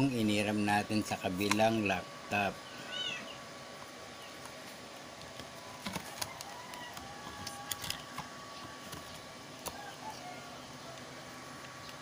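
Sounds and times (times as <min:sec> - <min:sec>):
hard drive clicking into bay: 0:01.4 - 0:01.9.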